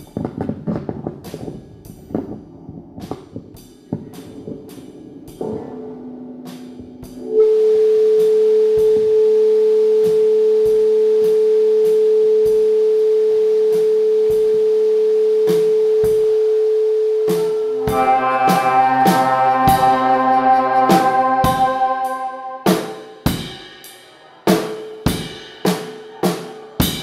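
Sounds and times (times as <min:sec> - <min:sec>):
steady pure electronic tone: 0:16.6 - 0:23.5
low drone: 0:17.5 - 0:23.4
electronic chord: 0:17.7 - 0:23.4.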